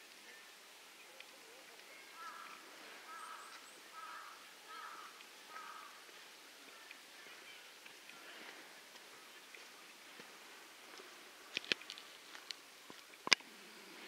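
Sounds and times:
faint crow cawing: 0:02.0 - 0:06.3.

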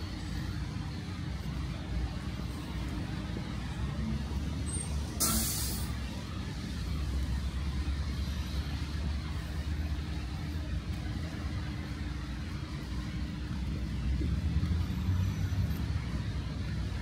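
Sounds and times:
heavy vehicles rumbling: 0:00.0 - 0:17.0
short sharp hiss: 0:05.2 - 0:05.9.

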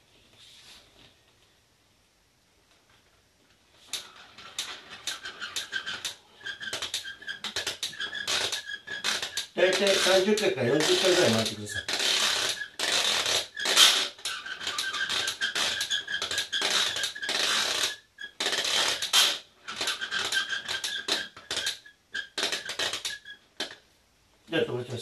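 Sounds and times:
thin squeak: 0:03.9 - 0:23.8
toy crank clicking: 0:03.9 - 0:23.8.

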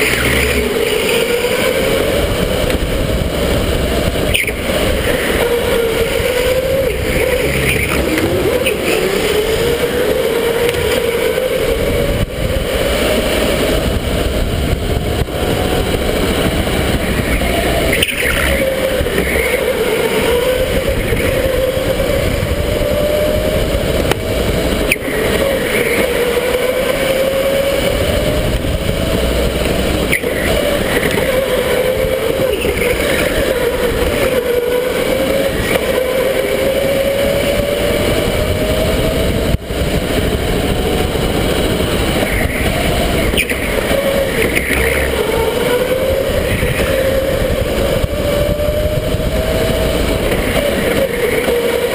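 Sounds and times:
electric motor whining: 0:00.0 - 0:51.9.

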